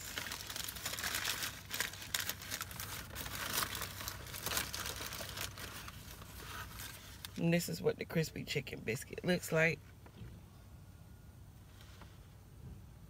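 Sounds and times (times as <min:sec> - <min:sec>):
paper wrapper crinkling: 0:00.0 - 0:07.4.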